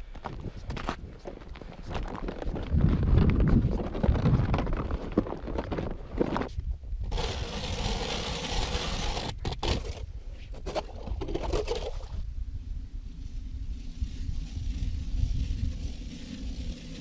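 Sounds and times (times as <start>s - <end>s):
low wind rumble on microphone: 0.0s - 17.0s
ice auger scraping through ice: 7.0s - 12.2s, 13.4s - 17.0s.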